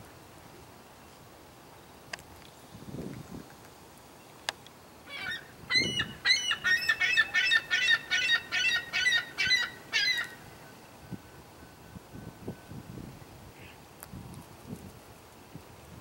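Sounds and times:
young gull begging calls: 0:05.1 - 0:10.4.

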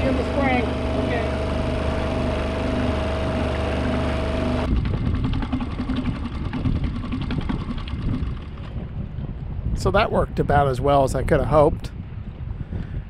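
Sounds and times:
outboard motor running: 0:00.0 - 0:09.6
wind buffeting microphone: 0:00.0 - 0:13.0.

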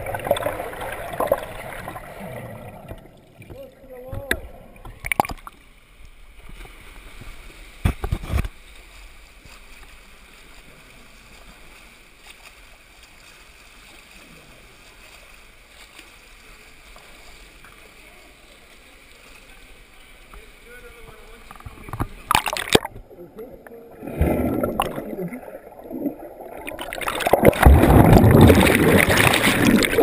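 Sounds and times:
swimmer splashing water: 0:24.0 - 0:30.0.

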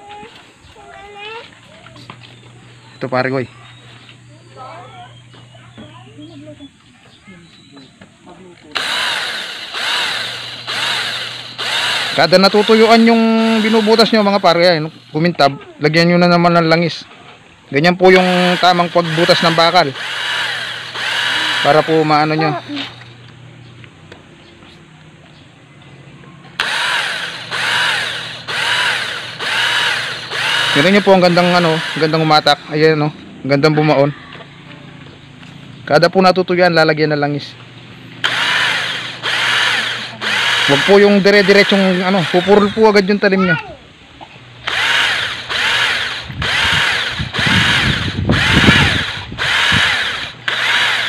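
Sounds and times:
electric drill boring into steel: 0:08.7 - 0:15.2, 0:18.1 - 0:23.1, 0:26.6 - 0:32.6, 0:38.2 - 0:43.2, 0:44.6 - 0:51.0.

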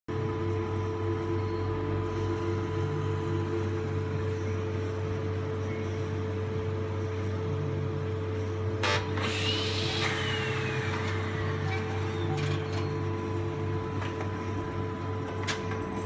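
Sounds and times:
binding machine motor hum: 0:08.0 - 0:16.0.

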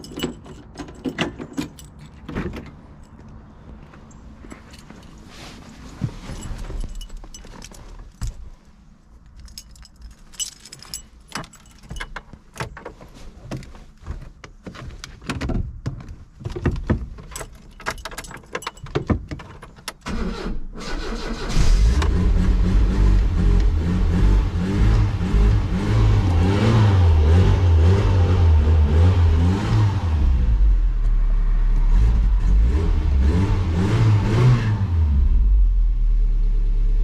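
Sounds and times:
keys jangling in ignition: 0:00.0 - 0:13.7, 0:16.5 - 0:20.2
car starter cranking: 0:17.6 - 0:23.8.

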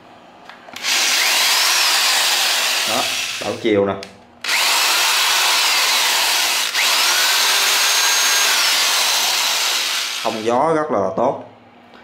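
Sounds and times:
electric drill whining: 0:00.8 - 0:03.7, 0:04.4 - 0:10.5.

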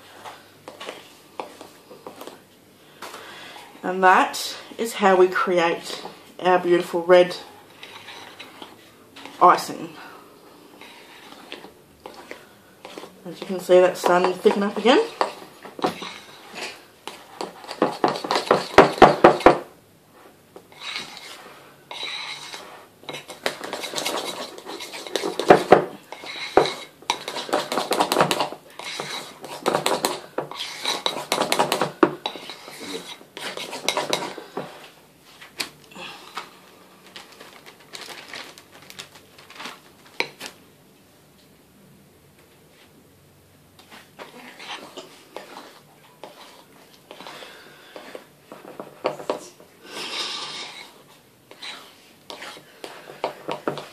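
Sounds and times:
metal utensil scraping ceramic bowl: 0:07.8 - 0:08.7, 0:20.7 - 0:34.6.

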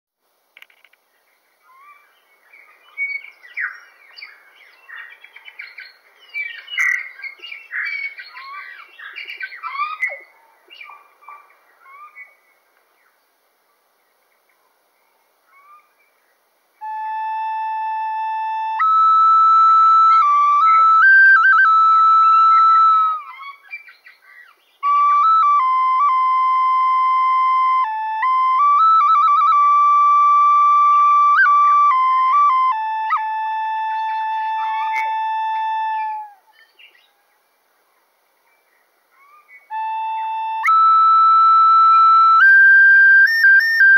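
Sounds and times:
birds chirping and whistling: 0:01.7 - 0:12.4, 0:18.5 - 0:37.1, 0:39.2 - 0:43.9
flute playing long notes: 0:16.8 - 0:23.6, 0:24.8 - 0:36.5, 0:39.7 - 0:43.9.

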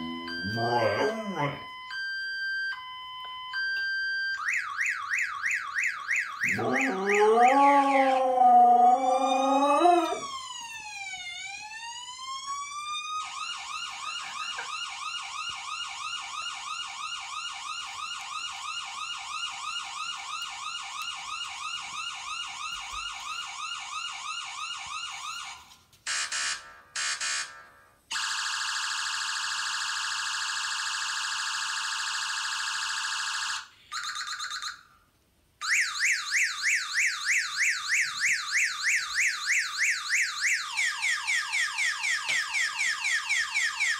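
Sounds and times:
husky howling: 0:00.0 - 0:01.6, 0:06.5 - 0:10.3
electronic siren cycling patterns: 0:00.0 - 0:27.6, 0:35.6 - 0:43.9.

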